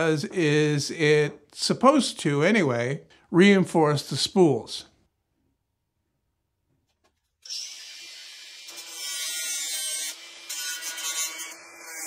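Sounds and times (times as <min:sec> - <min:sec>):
angle grinder grinding metal: 0:07.4 - 0:12.0.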